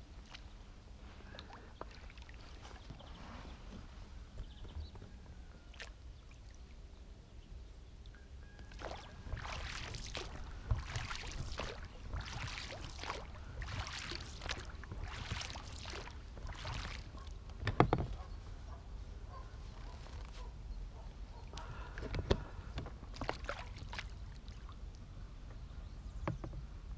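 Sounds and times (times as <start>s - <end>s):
oar strokes splashing in water: 0.0s - 6.7s, 8.6s - 18.4s, 21.5s - 24.9s.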